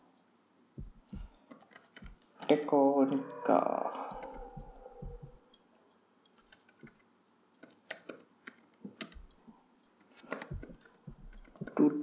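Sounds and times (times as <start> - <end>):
slow keyboard keystrokes: 0.8 - 2.5, 6.3 - 9.4, 10.0 - 11.9.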